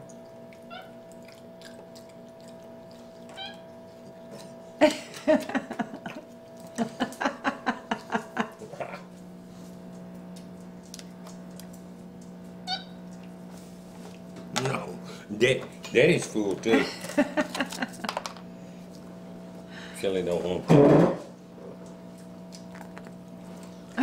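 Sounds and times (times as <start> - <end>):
monkey squeaky calls: 12.7 - 13.0.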